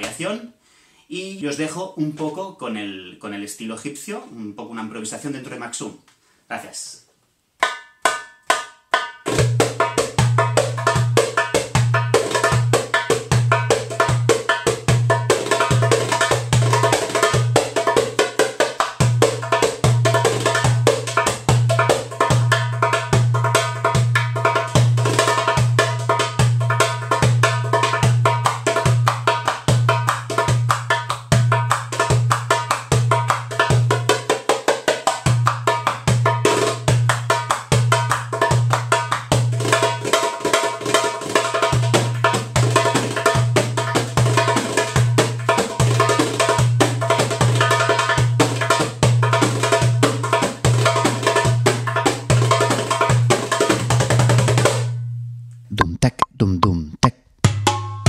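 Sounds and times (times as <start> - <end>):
goblet drum played by hand: 7.6 - 55.0, 55.7 - 58.0.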